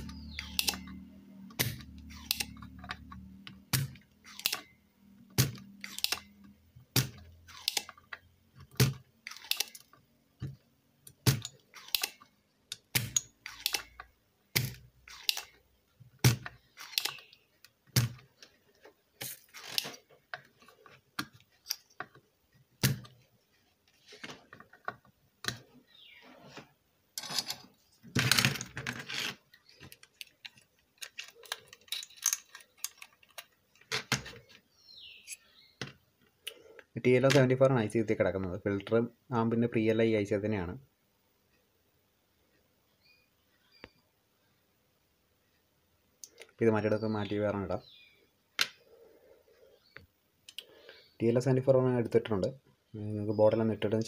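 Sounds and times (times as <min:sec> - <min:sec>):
desoldering pump clicking: 0:00.3 - 0:01.0, 0:01.6 - 0:04.7, 0:05.4 - 0:06.4.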